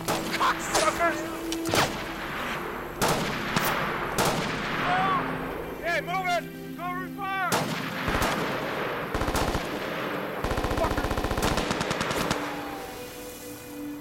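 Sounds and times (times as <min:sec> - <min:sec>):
rifle shots and automatic bursts: 0:03.0 - 0:04.8, 0:07.5 - 0:12.6.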